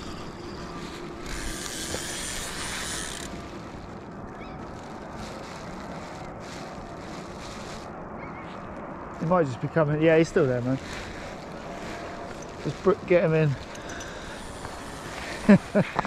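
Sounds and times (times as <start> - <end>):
wind rumbling on microphone: 0.0 - 16.0
rushing hiss: 12.8 - 16.0.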